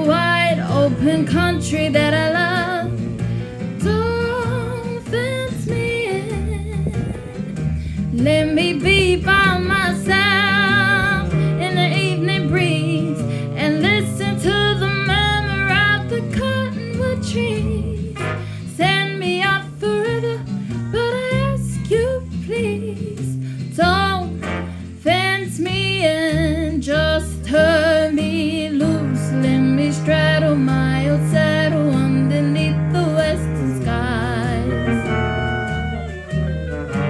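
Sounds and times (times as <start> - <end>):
guitar accompaniment: 0.0 - 37.0
wavering melody with vibrato: 29.3 - 37.0.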